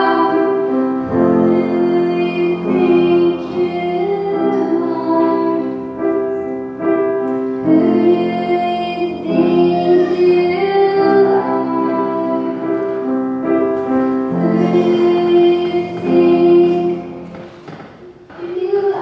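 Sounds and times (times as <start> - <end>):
girls singing pop ballad duet: 0.0 - 5.9, 7.6 - 13.0, 14.3 - 17.5, 18.3 - 19.0
piano accompaniment: 0.0 - 19.0.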